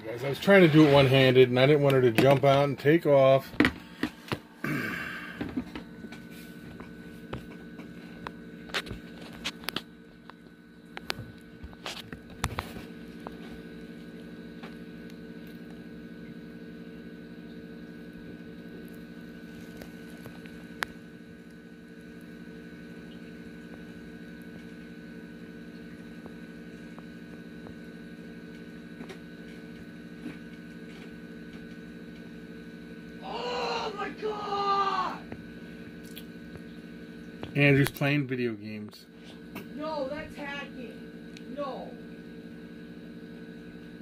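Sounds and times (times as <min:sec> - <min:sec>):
person speaking: 0:00.0 - 0:03.5, 0:33.2 - 0:35.2
electrical hum: 0:00.0 - 0:44.0.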